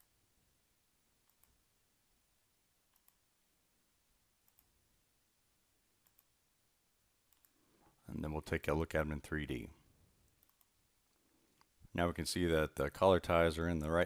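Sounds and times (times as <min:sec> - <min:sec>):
computer mouse clicks: 0:01.2 - 0:01.6, 0:02.9 - 0:03.2, 0:04.4 - 0:04.7, 0:06.0 - 0:06.3, 0:07.3 - 0:07.6, 0:10.3 - 0:10.7.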